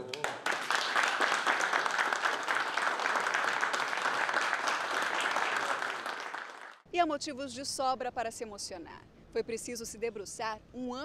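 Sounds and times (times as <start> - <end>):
group hand clapping: 0.0 - 6.8.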